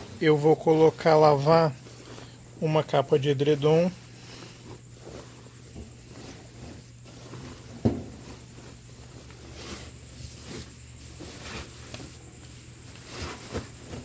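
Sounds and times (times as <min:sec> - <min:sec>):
bedding rustling and crumpling: 0:00.0 - 0:14.0
thumps and knocks in washing machine: 0:07.7 - 0:08.3.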